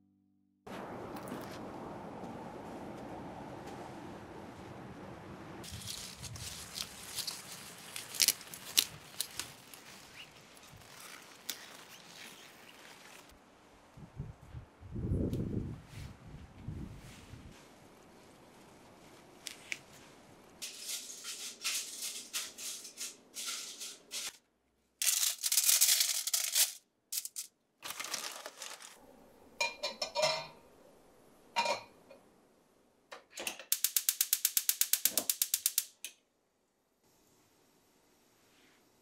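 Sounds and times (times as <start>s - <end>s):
parsley rustling: 5.6s - 13.3s, 25.0s - 29.0s.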